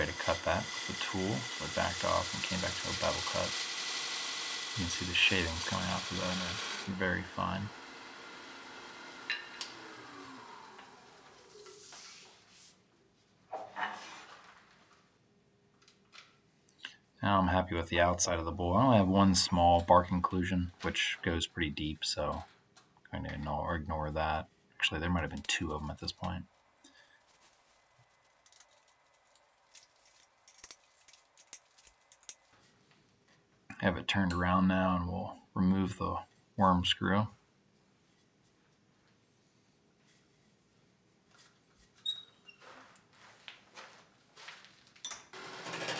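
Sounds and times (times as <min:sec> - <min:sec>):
wood lathe motor winding down: 0:00.0 - 0:11.7
handling sounds: 0:26.2 - 0:33.5.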